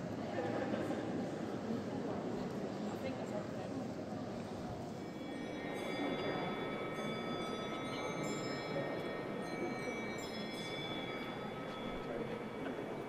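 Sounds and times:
murmur of voices: 0.0s - 13.0s
bells ringing: 5.0s - 13.0s.

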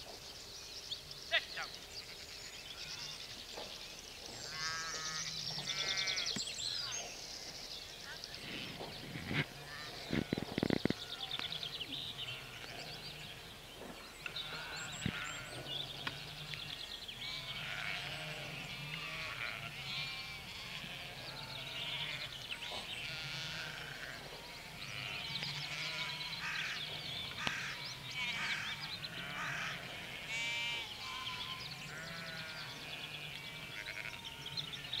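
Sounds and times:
sheep bleating: 4.5s - 6.3s, 12.2s - 12.9s, 17.2s - 26.8s, 27.4s - 34.6s.

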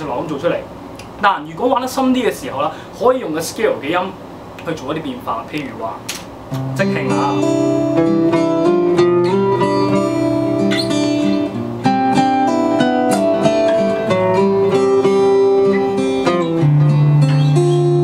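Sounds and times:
acoustic guitar lead: 6.4s - 18.0s.

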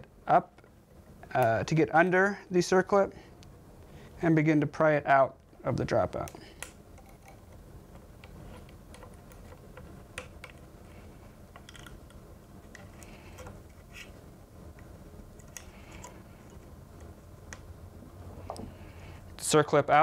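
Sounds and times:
small metallic clicks and scrapes: 11.5s - 14.2s, 15.4s - 17.6s.

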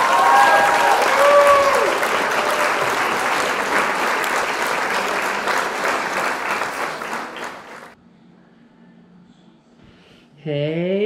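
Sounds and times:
crowd applause: 0.0s - 8.0s.

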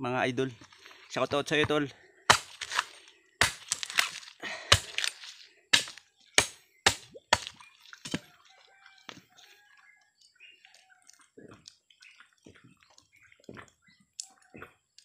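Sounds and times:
blade chopping coconut: 2.3s - 8.3s.

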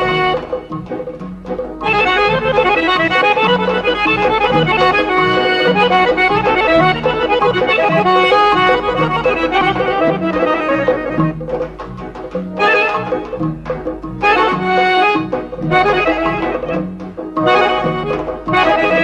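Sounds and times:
drums keeping a beat: 0.0s - 19.0s
fast instrumental melody: 0.0s - 19.0s.

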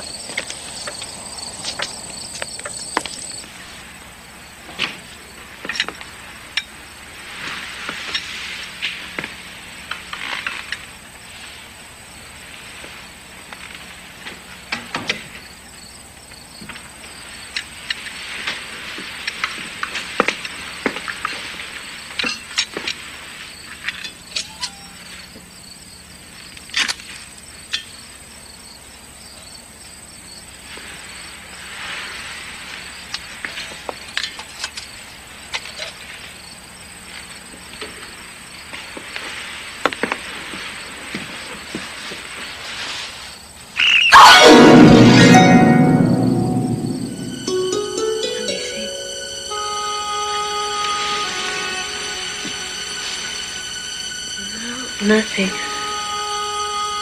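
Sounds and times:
crickets chirping: 0.0s - 7.2s, 10.8s - 19.3s, 20.2s - 39.1s, 51.6s - 56.9s
hiss: 30.6s - 34.1s, 37.2s - 44.0s.

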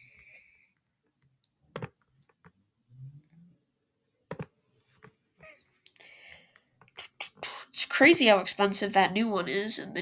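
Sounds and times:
computer mouse clicks: 1.1s - 2.6s, 4.3s - 5.2s
soft low sound: 2.4s - 5.1s.

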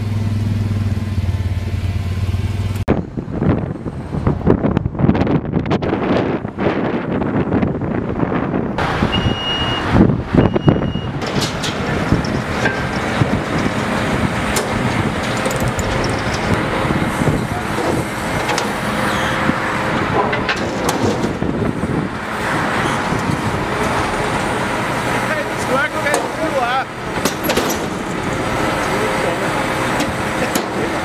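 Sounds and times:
heavy truck engines running: 0.0s - 31.0s
road traffic noise: 0.0s - 31.0s
short high beeps: 9.1s - 11.2s
loud knocks: 20.0s - 21.7s, 27.1s - 28.4s.

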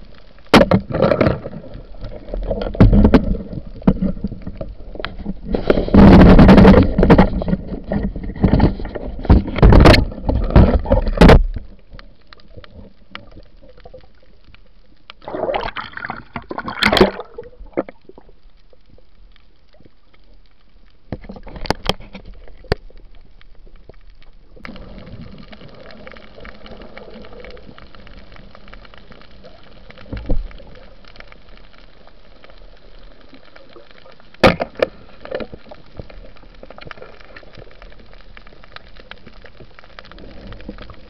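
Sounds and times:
water sloshing and splashing: 0.5s - 19.2s, 19.8s - 41.0s.

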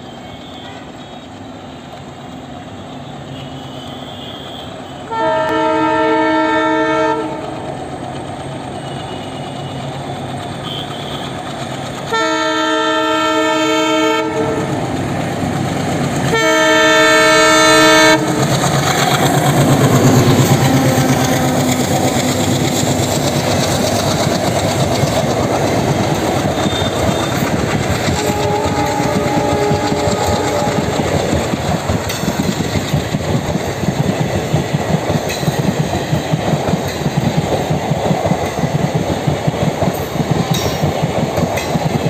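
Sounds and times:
passing train clatter: 0.0s - 42.0s
locomotive air horn blasts: 3.2s - 7.6s, 10.6s - 11.4s, 12.1s - 14.8s, 16.3s - 19.4s, 26.5s - 31.5s
locomotive engine rumble: 14.4s - 37.8s.

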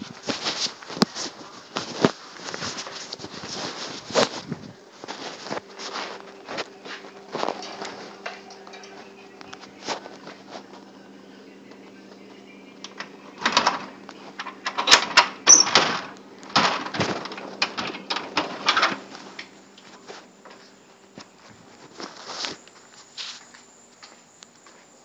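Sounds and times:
low steady hum: 0.0s - 25.0s
door clicks and knocks: 12.9s - 19.0s.

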